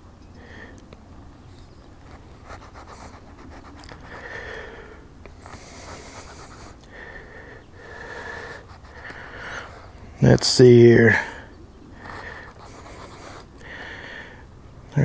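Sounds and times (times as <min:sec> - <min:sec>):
person breathing: 0:00.4 - 0:00.9, 0:04.0 - 0:10.1, 0:11.1 - 0:14.5.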